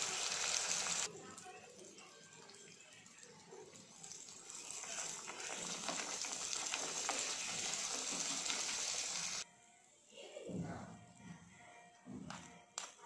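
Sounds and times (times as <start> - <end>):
food sizzling in oil: 0.0 - 9.4.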